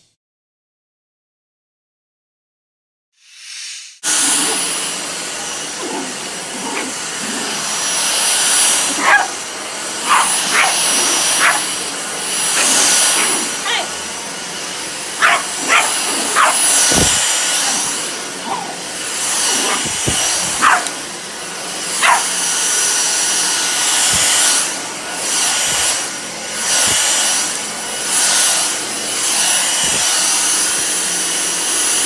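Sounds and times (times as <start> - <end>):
vacuum cleaner whining on carpet: 4.0 - 32.0
small dog yipping: 8.8 - 9.4, 10.0 - 11.7, 12.6 - 13.9, 15.2 - 21.0, 22.0 - 22.4.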